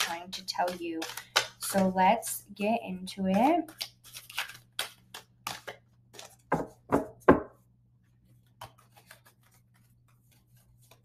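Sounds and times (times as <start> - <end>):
cards being shuffled: 0.0 - 1.6, 3.3 - 6.8, 8.2 - 11.0.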